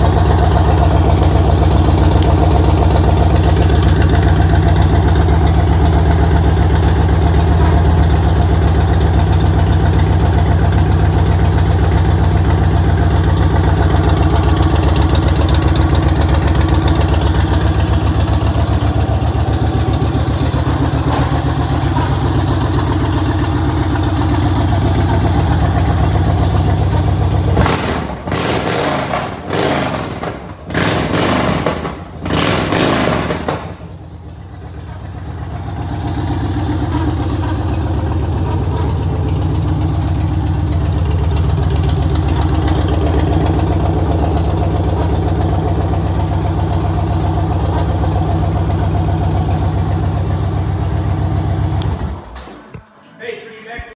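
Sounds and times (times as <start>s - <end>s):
motorcycle engine idling: 0.0s - 28.6s, 33.4s - 52.7s.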